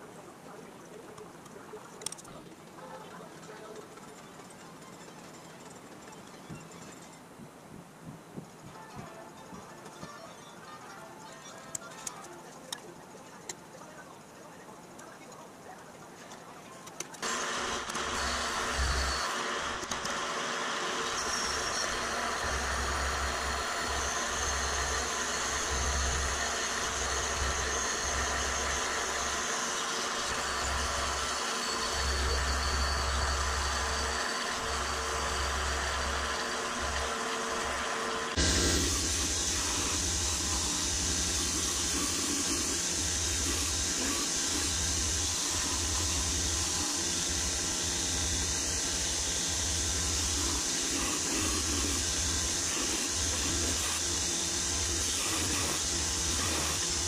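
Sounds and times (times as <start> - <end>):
bandsaw cutting aluminum: 17.2 - 57.0
belt and disc sander hiss: 17.2 - 57.0.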